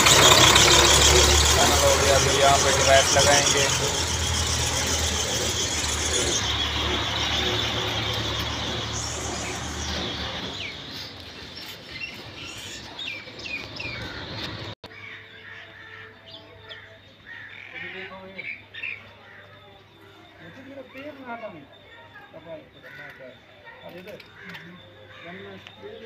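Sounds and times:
vehicle engine running: 0:00.0 - 0:14.8
birds chirping: 0:00.0 - 0:26.0.

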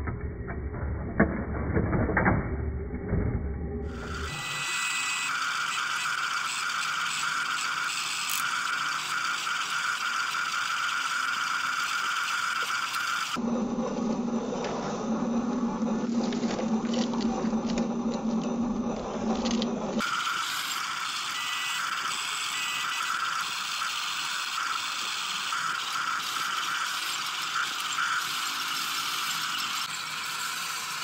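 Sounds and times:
toy electric motors whirring: 0:03.9 - 0:13.4, 0:15.8 - 0:31.0.

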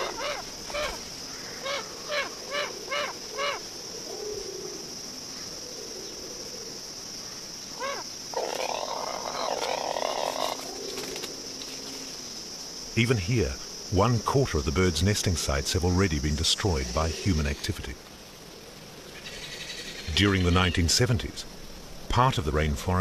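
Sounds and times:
seabird calling: 0:00.0 - 0:03.7, 0:07.8 - 0:11.0
high insect drone: 0:00.0 - 0:23.0.

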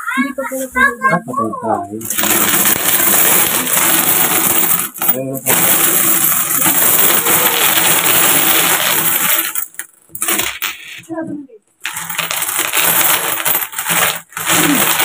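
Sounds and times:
coins pouring and clattering: 0:02.0 - 0:10.8, 0:11.8 - 0:15.0.

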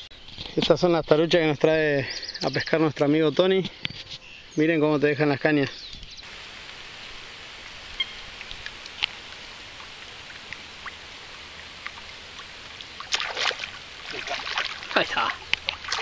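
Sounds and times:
steady hiss: 0:06.1 - 0:16.0
fish striking with loud splashing: 0:13.0 - 0:16.0
small lure splashes: 0:13.0 - 0:16.0.

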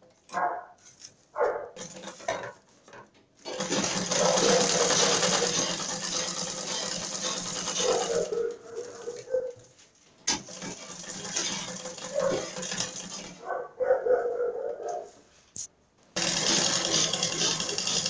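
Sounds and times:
handling sounds: 0:00.0 - 0:03.5
sewing machine running: 0:01.8 - 0:02.2, 0:03.5 - 0:09.3, 0:10.3 - 0:13.4, 0:16.2 - 0:18.0.

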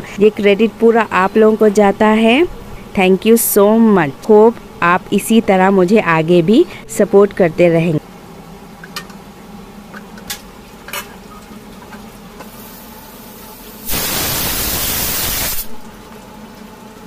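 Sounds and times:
background hum: 0:00.0 - 0:17.0
steam hissing: 0:12.5 - 0:15.8.

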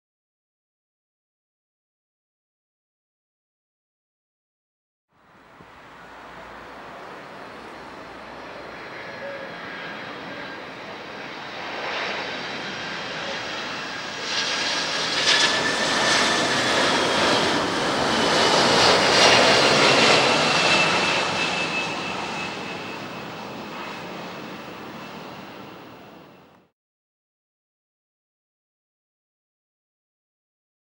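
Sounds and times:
jet engines passing overhead: 0:05.3 - 0:26.7.

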